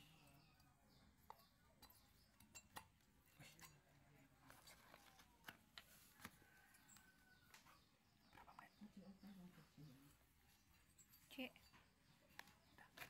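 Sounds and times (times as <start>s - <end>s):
faint metal clicks and taps: 0.6s - 8.7s, 10.7s - 13.0s.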